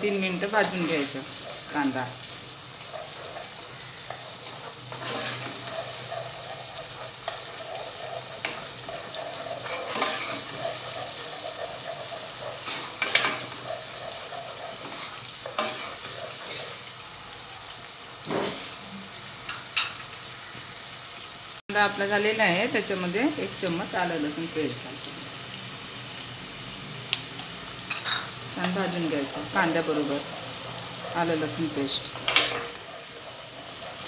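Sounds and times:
onion paste sizzling in oil: 0.0 - 34.0
steel spoon scraping pan: 0.5 - 17.0, 27.9 - 34.0.

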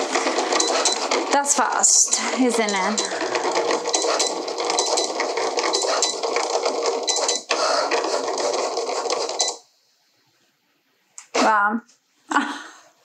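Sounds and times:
cutting machine motors whirring: 0.0 - 9.6.

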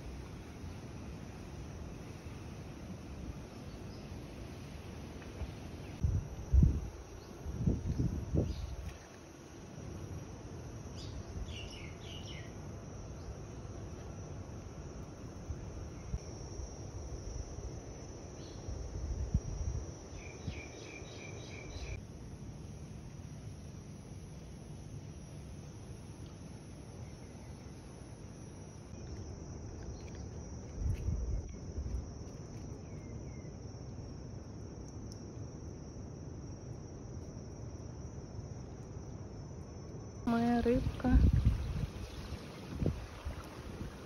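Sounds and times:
low wind rumble: 0.0 - 8.9, 40.2 - 44.0
insects droning: 0.0 - 44.0
quick insect chirps: 0.0 - 44.0.

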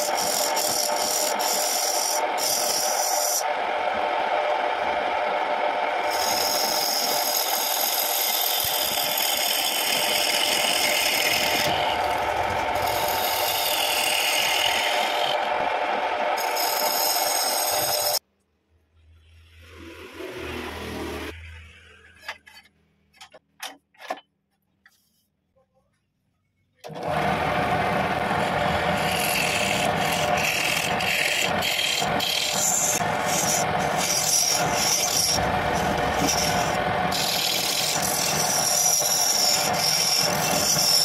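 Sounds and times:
chisel scraping spinning wood: 0.0 - 4.6, 5.2 - 18.2, 26.9 - 41.0
wood lathe running: 0.0 - 18.2, 26.8 - 41.0.

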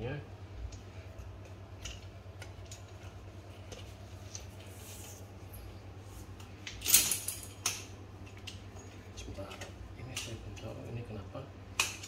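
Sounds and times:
steady low hum: 0.0 - 12.0
soft rubbing hiss: 3.8 - 6.4
folding bike clicks and rattles: 6.6 - 7.9.

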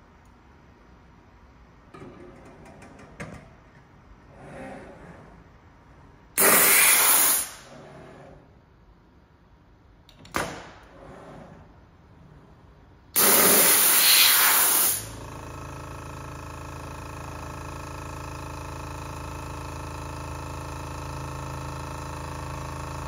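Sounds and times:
compressed air hiss: 6.4 - 7.7, 13.2 - 15.2.

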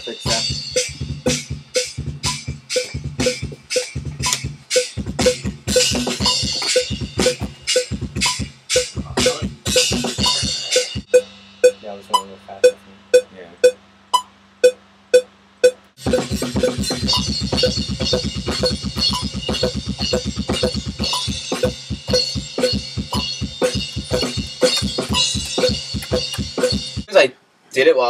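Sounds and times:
metal drum kit playing: 0.0 - 13.8, 15.6 - 27.1
metronome click: 3.8 - 4.5, 23.9 - 26.7.

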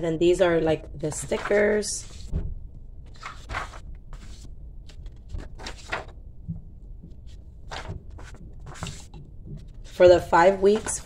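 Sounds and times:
paper sheets rustling: 1.1 - 2.4, 3.0 - 6.2, 7.1 - 11.0.

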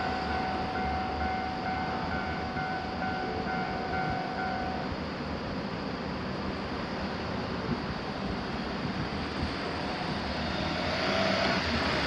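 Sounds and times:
cars driving over crossing: 6.5 - 12.0.

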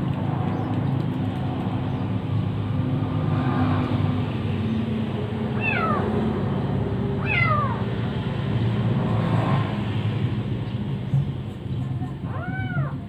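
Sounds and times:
kitten meowing: 5.6 - 6.1, 7.2 - 7.8, 12.2 - 13.0.

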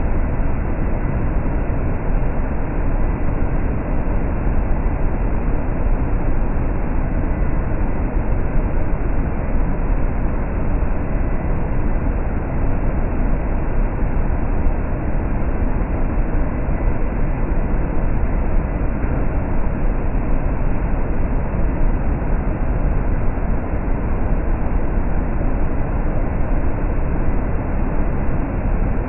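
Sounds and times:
faint high whine: 0.0 - 29.0.

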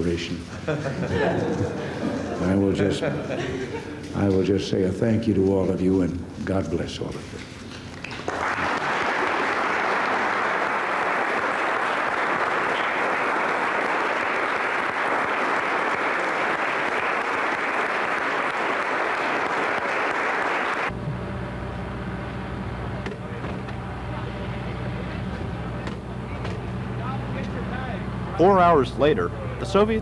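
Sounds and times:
crowd applauding: 7.9 - 21.0
coach engine idling: 20.9 - 30.0.

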